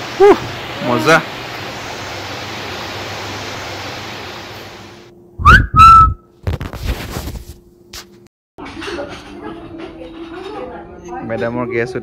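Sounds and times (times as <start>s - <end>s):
forest stream rushing: 0.0s - 5.1s
rising whistle: 5.4s - 6.3s.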